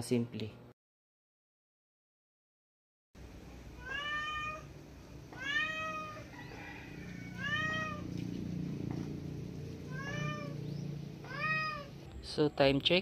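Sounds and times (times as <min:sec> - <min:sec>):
cat meowing: 0:03.8 - 0:06.3, 0:07.2 - 0:08.2, 0:09.8 - 0:12.0
low hum: 0:07.0 - 0:12.4.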